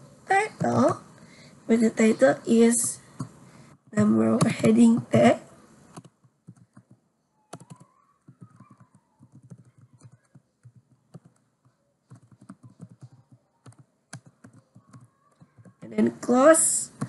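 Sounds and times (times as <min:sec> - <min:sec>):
computer keyboard typing: 0:05.9 - 0:16.2.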